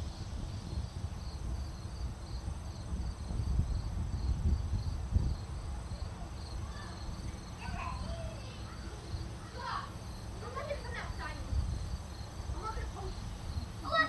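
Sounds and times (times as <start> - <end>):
wind rumble on microphone: 0.0 - 8.6, 10.4 - 14.0
cricket chirping: 0.0 - 14.0.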